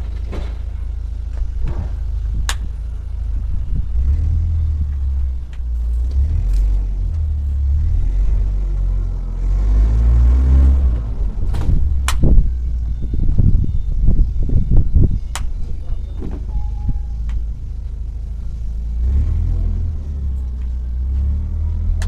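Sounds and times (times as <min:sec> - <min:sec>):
truck diesel engine idling: 0:00.0 - 0:09.3, 0:11.1 - 0:19.0
sharp metallic clicks: 0:12.0 - 0:12.4, 0:15.3 - 0:15.6.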